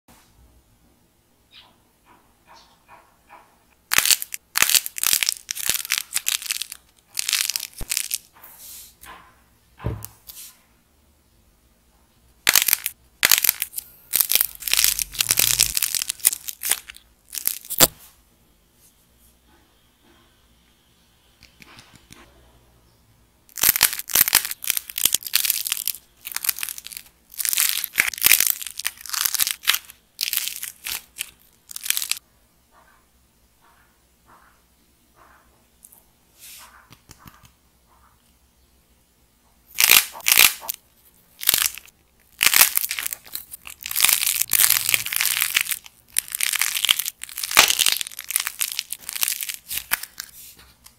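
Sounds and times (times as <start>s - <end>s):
dull knock: 9.2s - 10.1s
clay cracking and crumbling: 12.5s - 18.0s, 23.5s - 32.2s, 41.4s - 50.4s.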